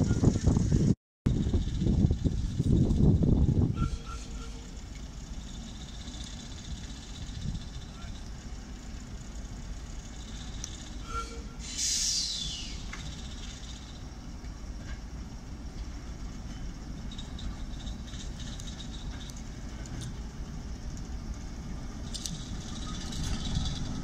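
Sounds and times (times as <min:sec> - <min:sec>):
diesel locomotive rumbling: 0:00.0 - 0:24.0
high squeal falling in pitch: 0:11.0 - 0:13.0.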